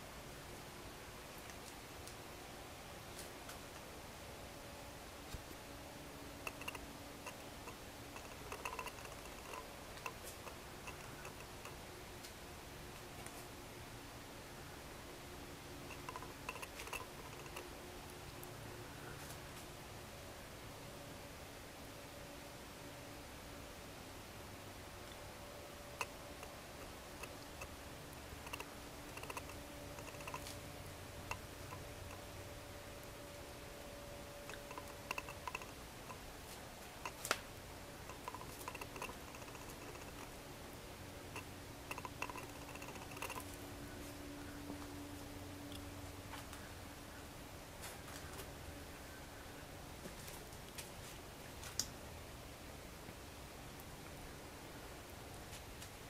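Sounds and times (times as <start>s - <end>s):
faint steady hiss and hum: 0.0s - 56.0s
light clicks and ticks: 6.4s - 12.4s, 15.9s - 17.7s, 26.0s - 27.8s, 28.4s - 30.6s, 31.2s - 32.3s, 34.4s - 36.2s, 37.0s - 40.4s, 41.3s - 43.6s.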